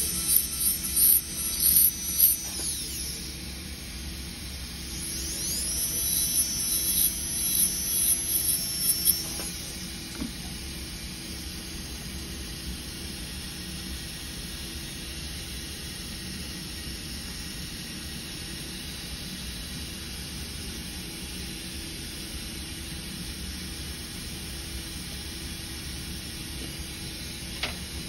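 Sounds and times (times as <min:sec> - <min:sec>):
machinery hum and hiss: 0:00.0 - 0:28.0.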